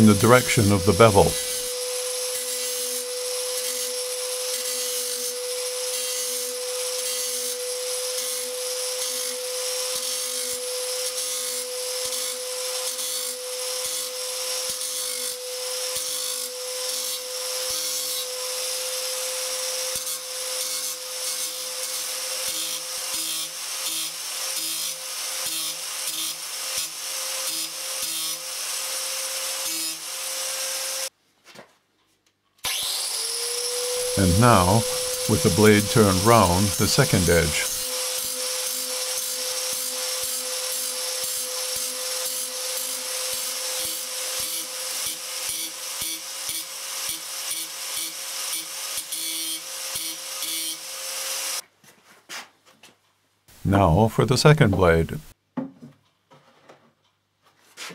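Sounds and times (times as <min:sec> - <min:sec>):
angle grinder whining: 0:00.0 - 0:23.3, 0:32.6 - 0:45.7
grinding disc scraping metal: 0:34.0 - 0:37.8.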